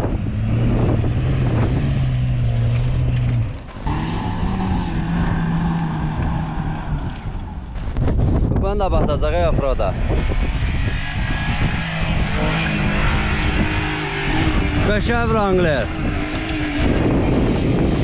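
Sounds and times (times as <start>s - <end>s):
higher-pitched engine climbing hill: 0.0s - 18.0s
engine pulling under load: 0.3s - 8.3s.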